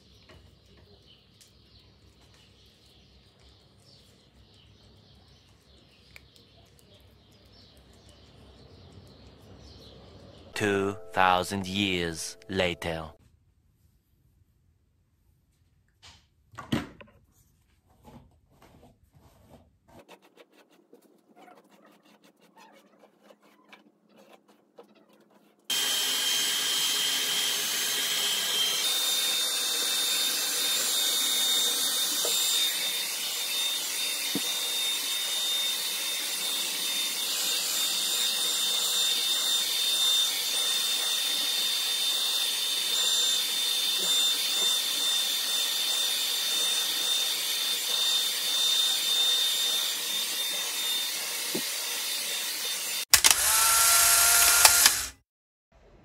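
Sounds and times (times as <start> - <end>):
hair dryer whining: 25.7 - 55.2.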